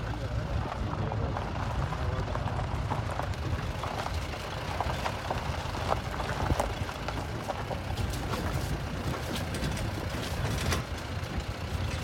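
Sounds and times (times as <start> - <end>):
low engine rumble: 0.0 - 12.0
vehicle rattles and knocks: 0.0 - 12.0.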